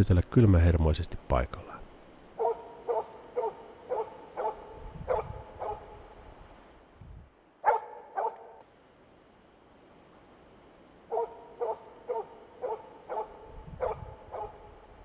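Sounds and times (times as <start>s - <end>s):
dog barking: 2.4s - 6.0s, 7.6s - 8.6s, 11.1s - 14.7s.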